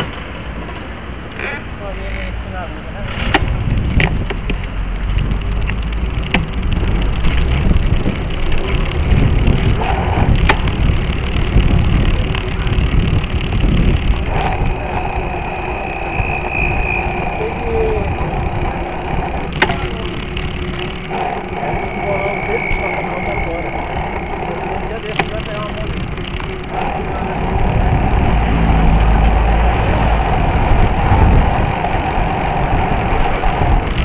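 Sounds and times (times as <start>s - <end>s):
rumble of tyres and wind: 0.0s - 34.0s
bike chain and frame rattles: 3.5s - 34.0s
faint steady whine: 9.2s - 34.0s.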